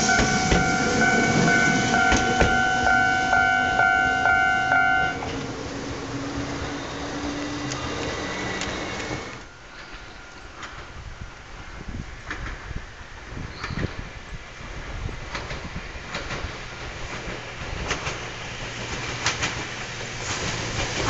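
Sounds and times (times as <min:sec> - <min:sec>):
level-crossing alarm ringing: 0:00.0 - 0:05.3
street noise: 0:00.0 - 0:21.0
train rumbling over crossing: 0:00.0 - 0:21.0.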